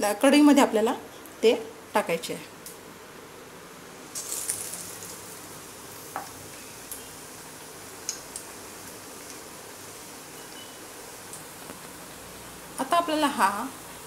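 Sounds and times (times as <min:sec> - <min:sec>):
bread sizzling in hot oil: 0:03.8 - 0:14.0.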